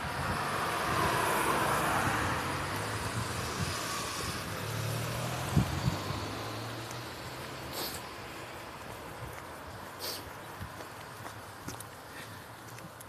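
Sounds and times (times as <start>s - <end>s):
motor vehicle engine hum: 0.0s - 13.0s.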